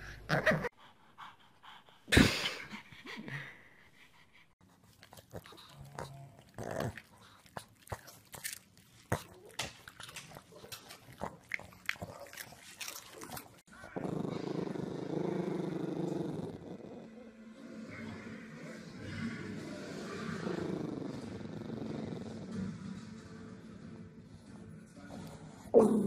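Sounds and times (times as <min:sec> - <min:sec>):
dog clicking and snorting: 0:04.6 - 0:13.7
dog grunting rumble: 0:05.3 - 0:07.6, 0:13.8 - 0:17.3, 0:18.8 - 0:22.9, 0:25.2 - 0:26.0.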